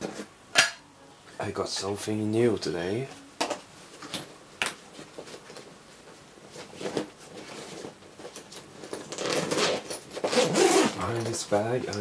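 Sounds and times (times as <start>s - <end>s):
fabric bag rustling: 4.9s - 11.4s.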